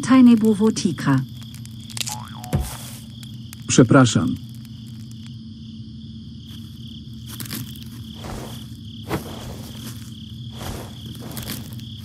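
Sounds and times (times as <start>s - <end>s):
crickets chirping: 0.0s - 12.0s
soft rustling: 6.4s - 12.0s.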